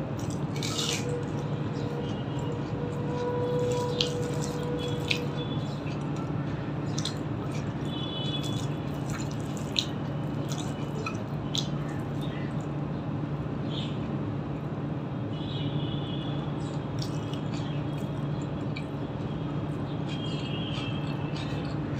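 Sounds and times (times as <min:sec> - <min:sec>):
low background hum: 0:00.0 - 0:21.9
mouth eating: 0:00.1 - 0:12.6, 0:16.7 - 0:21.9.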